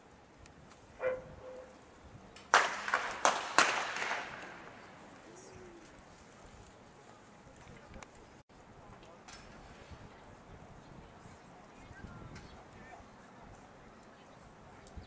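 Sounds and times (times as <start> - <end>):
sharp bangs: 2.4 - 5.0
starter's pistol gunshot: 2.5 - 4.6.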